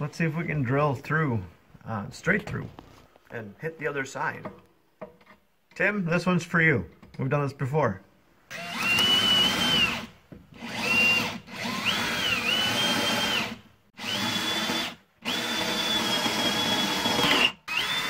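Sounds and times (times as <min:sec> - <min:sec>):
power drill boring through steel: 0:08.5 - 0:18.0.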